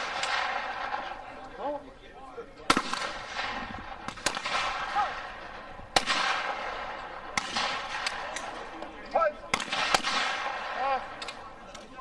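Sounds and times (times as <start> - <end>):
shotgun shots echoing: 0.0 - 1.3, 2.7 - 8.8, 9.5 - 11.5.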